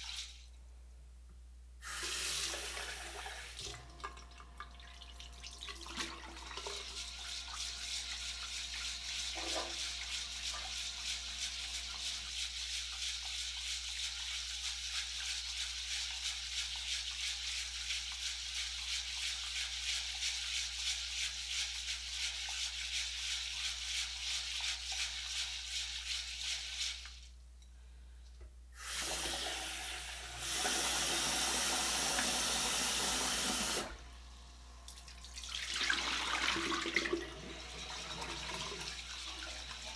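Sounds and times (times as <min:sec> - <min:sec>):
rice swished by hand in water: 0:06.6 - 0:27.3.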